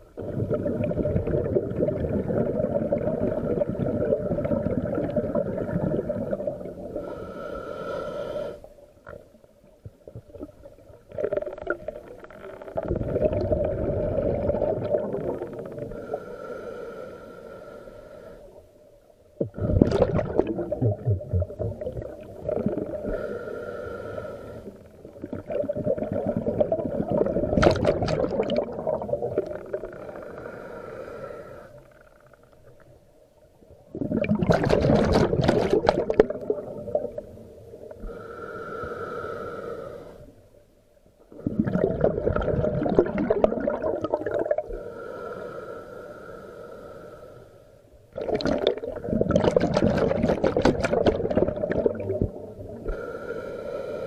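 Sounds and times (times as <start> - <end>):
bubbling exhalations underwater: 0.2 - 6.8, 12.8 - 15.9, 19.4 - 23.0, 25.2 - 30.0, 33.9 - 37.2, 41.3 - 44.7, 48.2 - 52.8
hissing regulator inhalations: 6.7 - 8.8, 15.5 - 18.7, 22.8 - 25.1, 29.6 - 32.4, 37.9 - 40.5, 44.7 - 47.9, 52.8 - 54.0.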